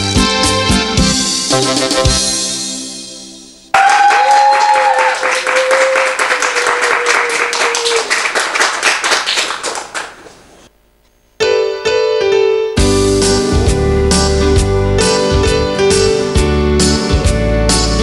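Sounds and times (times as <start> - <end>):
keyboard backing track: 0.0 - 3.7, 11.4 - 18.0
applause: 3.7 - 10.5.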